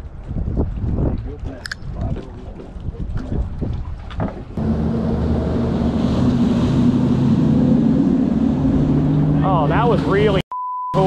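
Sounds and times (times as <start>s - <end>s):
motorboat engine drone: 4.6s - 10.2s.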